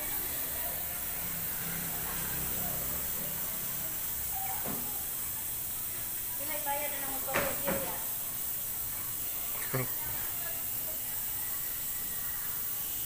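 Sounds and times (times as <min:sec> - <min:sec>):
airbrush hissing: 0:00.0 - 0:13.0.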